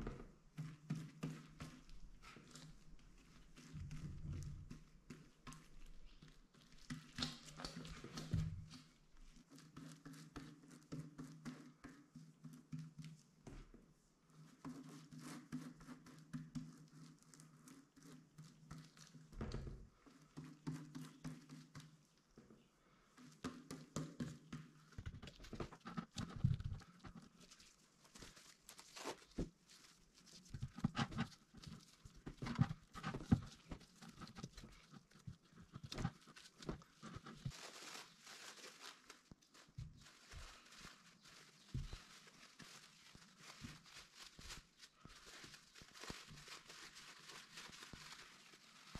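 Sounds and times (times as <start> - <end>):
paper towel rustling: 25.1 - 48.9.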